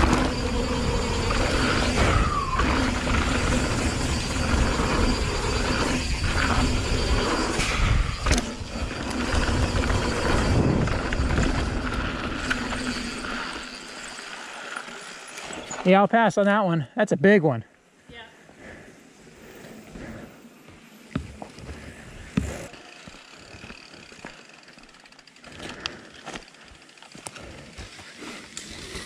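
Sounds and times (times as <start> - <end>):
wind rushing over microphone: 0.0 - 12.5
bike tyres rumbling on gravel: 0.0 - 15.8, 20.8 - 29.0.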